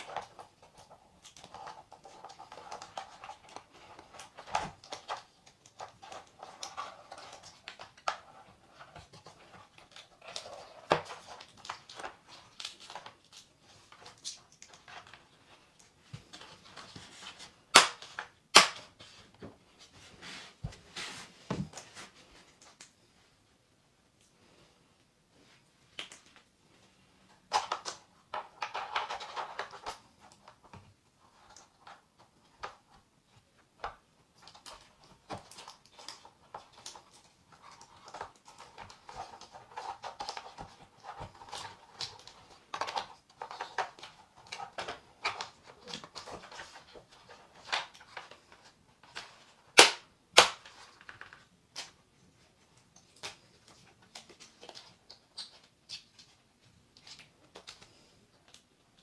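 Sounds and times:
wires and plastic rustling: 0.0s - 59.0s
loud sharp plastic snaps: 17.7s - 18.9s, 49.7s - 50.8s.

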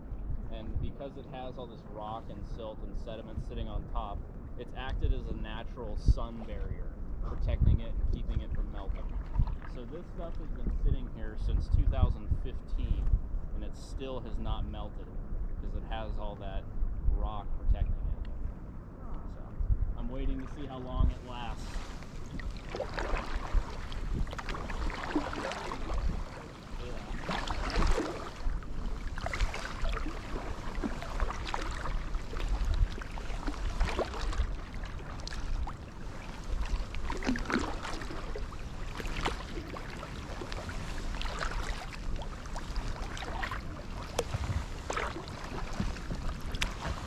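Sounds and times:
steady low rumble: 0.0s - 47.0s
kayak paddle splashing in water: 21.6s - 47.0s.

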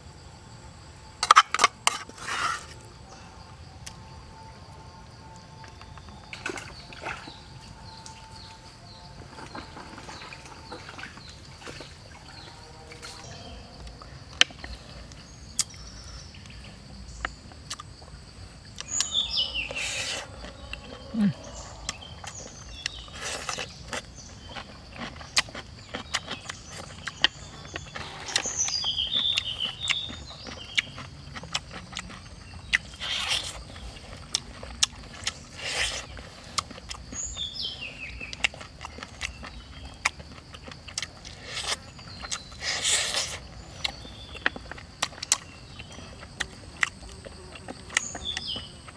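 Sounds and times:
high insect drone: 0.0s - 48.9s
birds chirping: 5.6s - 48.9s
chewing and biting: 17.2s - 48.9s.

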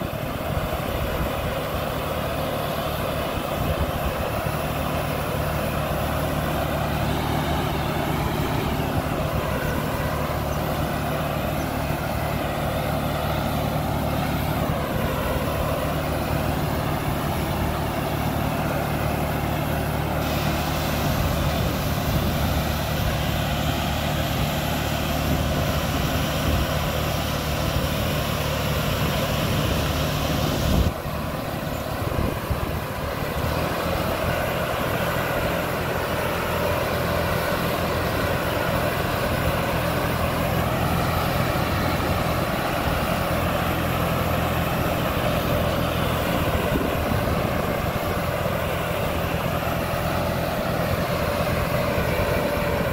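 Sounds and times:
sprayer fan air rush: 0.0s - 52.9s
tractor engine drone: 0.0s - 52.9s.

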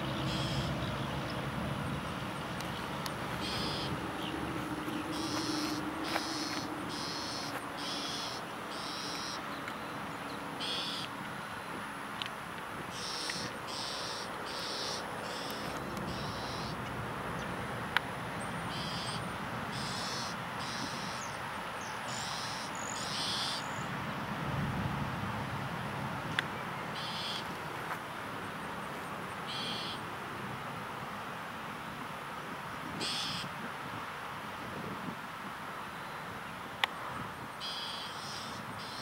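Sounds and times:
steady background hiss: 0.0s - 39.0s
eagle piping calls: 0.2s - 0.8s, 3.3s - 9.4s, 13.0s - 16.8s, 27.0s - 27.4s, 29.5s - 30.0s.

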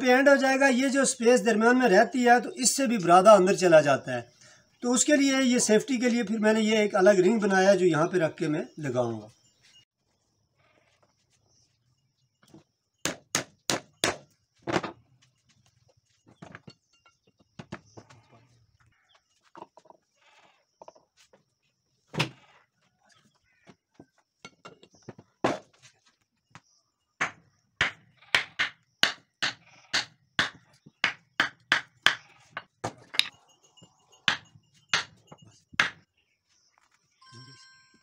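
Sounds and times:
hammer blows on wooden block: 27.2s - 33.3s, 34.3s - 36.0s.

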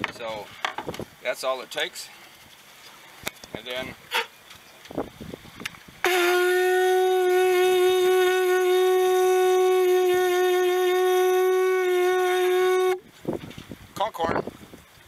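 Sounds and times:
conch shell horn note: 6.0s - 13.0s.

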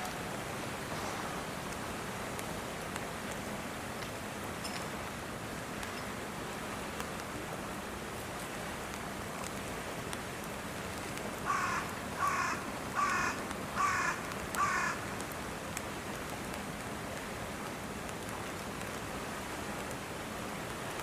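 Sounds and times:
steady background hiss: 0.0s - 21.0s
crow cawing: 11.5s - 15.0s.

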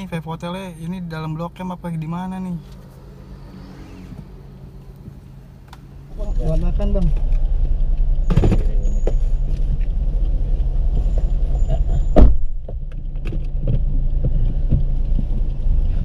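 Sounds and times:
loud thump: 8.2s - 9.3s, 12.1s - 12.8s.

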